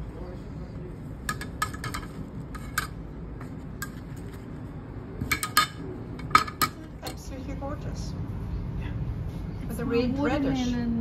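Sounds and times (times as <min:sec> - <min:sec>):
utensils clinking on ceramic plate: 0:01.3 - 0:03.0, 0:05.2 - 0:07.2.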